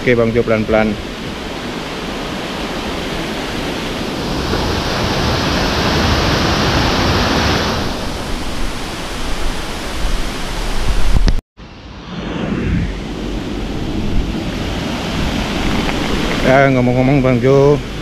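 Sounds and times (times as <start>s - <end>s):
waterfall rushing: 1.4s - 11.2s.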